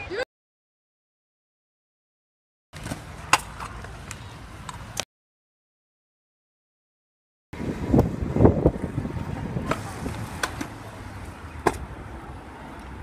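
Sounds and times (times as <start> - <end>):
scooter wheels rolling on concrete: 2.8 - 5.0, 7.6 - 13.0.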